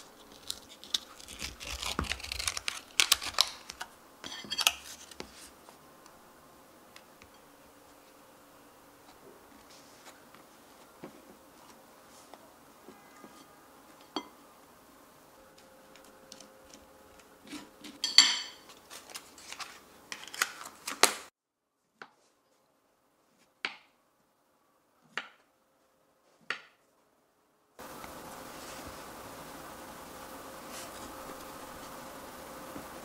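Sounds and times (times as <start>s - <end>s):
steady hiss: 27.8s - 33.0s.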